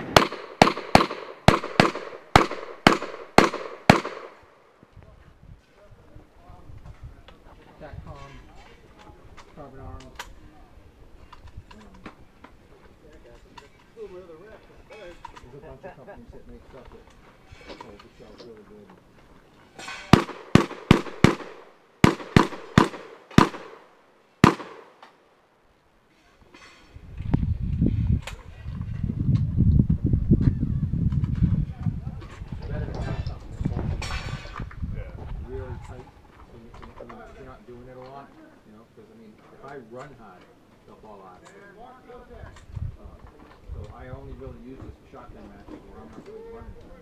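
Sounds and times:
shotgun shots: 0:00.0 - 0:04.5, 0:19.9 - 0:25.0.

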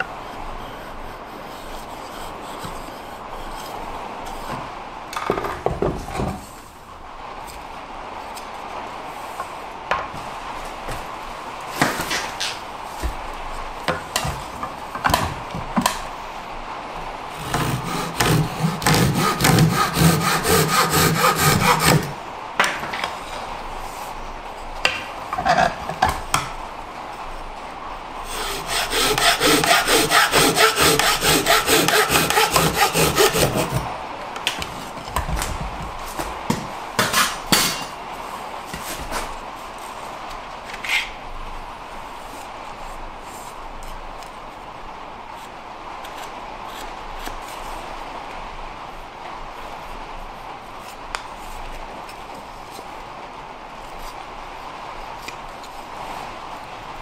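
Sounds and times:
hand saw cutting wood: 0:00.0 - 0:04.5, 0:17.3 - 0:22.2, 0:28.2 - 0:34.0, 0:37.0 - 0:37.6.

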